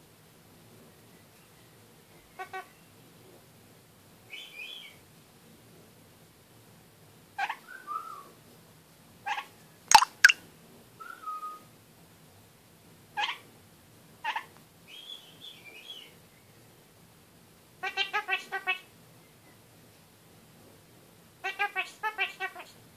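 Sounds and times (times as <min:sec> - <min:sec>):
parakeet sharp chirps: 0:09.9 - 0:10.4.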